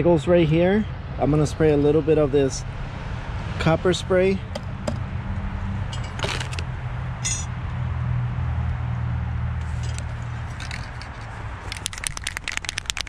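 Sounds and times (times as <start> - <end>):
metal parts clinking on table: 5.9 - 6.6, 7.2 - 7.5, 9.8 - 12.8.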